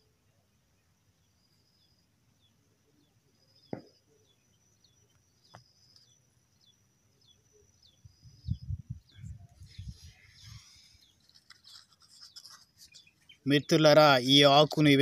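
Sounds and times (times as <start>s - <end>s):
thin steady high tone: 0.0s - 15.0s
small bird chirping: 0.4s - 15.0s.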